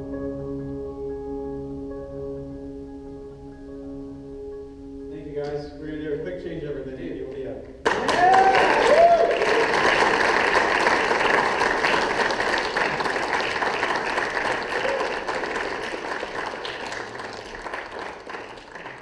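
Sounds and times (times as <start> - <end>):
audience applauding: 7.8 - 19.0.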